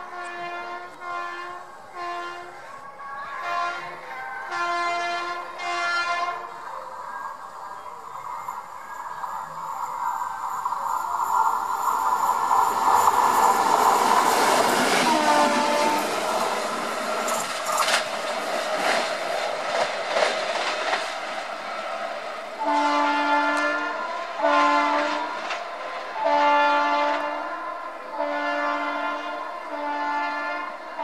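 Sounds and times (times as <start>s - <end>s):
locomotive horn blasts: 0.0s - 6.6s, 14.9s - 16.4s, 22.6s - 25.5s, 26.2s - 31.0s
train wheels clattering over rail joints: 12.8s - 22.1s.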